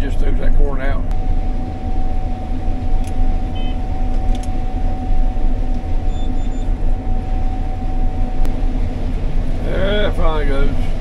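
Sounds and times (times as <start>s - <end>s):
combine harvester rumble: 0.0s - 11.0s
constant machine whine: 0.0s - 11.0s
faint short beeps: 3.5s - 4.5s, 6.0s - 6.8s.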